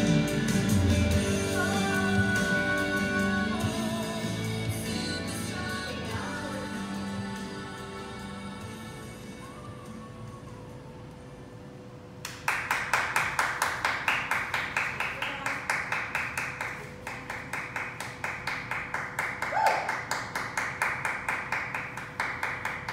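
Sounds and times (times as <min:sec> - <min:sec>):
audience clapping in rhythm: 0:12.2 - 0:22.9.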